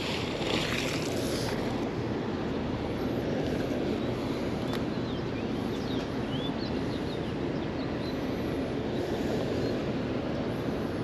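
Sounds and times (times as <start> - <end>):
outdoor background rush: 0.0 - 11.0.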